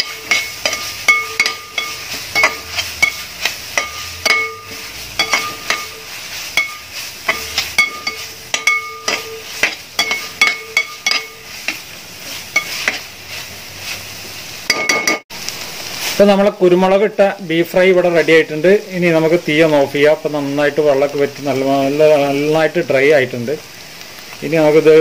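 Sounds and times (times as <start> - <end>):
ladle knocking ringing pot: 0.0 - 3.2, 3.8 - 6.0, 6.6 - 9.4, 10.0 - 11.4, 14.7 - 15.2
metal ladle scraping pot: 0.0 - 13.1
light sizzle of meat frying: 0.0 - 25.0.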